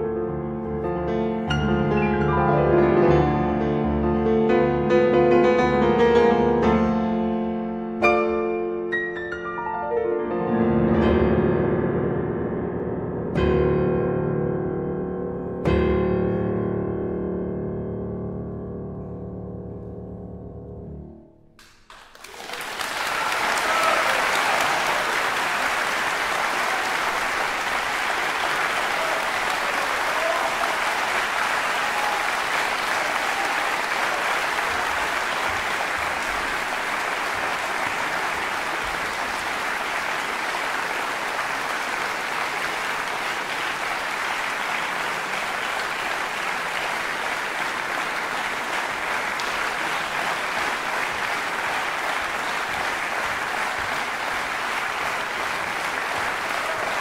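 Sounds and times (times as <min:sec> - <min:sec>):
audience applauding: 0:21.6 - 0:57.0.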